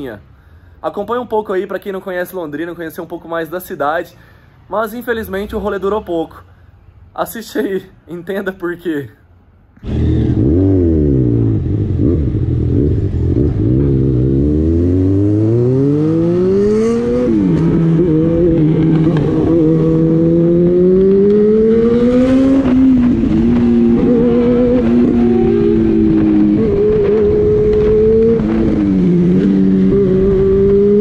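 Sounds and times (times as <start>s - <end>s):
motorcycle engine accelerating: 9.8s - 31.0s.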